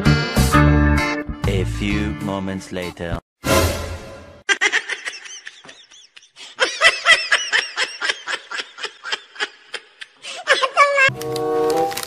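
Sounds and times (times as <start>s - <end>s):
high-pitched laughter: 4.5s - 11.1s.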